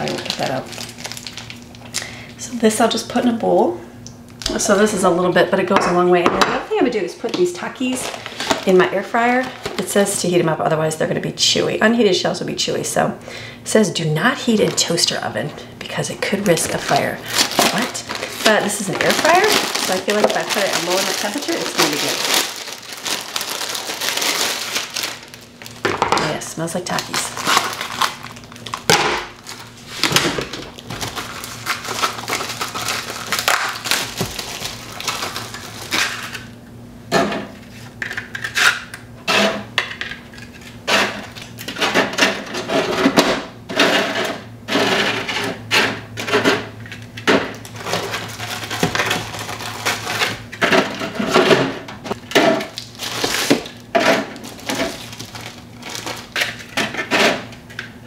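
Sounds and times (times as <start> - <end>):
plastic wrapper crinkling: 0.0 - 2.1, 7.2 - 8.8, 16.4 - 36.6, 47.0 - 50.5, 52.1 - 56.8
taco shells clattering: 16.8 - 26.1, 27.2 - 36.5, 46.2 - 57.9.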